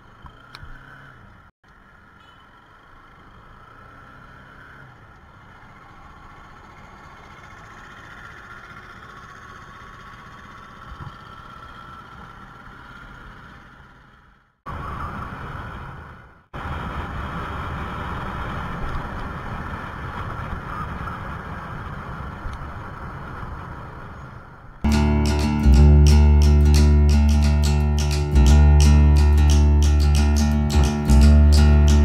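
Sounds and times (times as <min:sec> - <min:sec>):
road noise: 0:00.0 - 0:32.0
motorcycle engine hum: 0:04.8 - 0:16.0.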